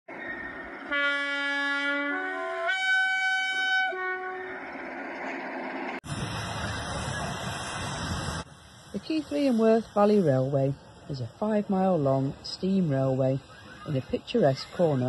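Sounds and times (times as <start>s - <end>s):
train horn: 0.9s - 4.8s
steady rushing hiss: 6.0s - 15.0s.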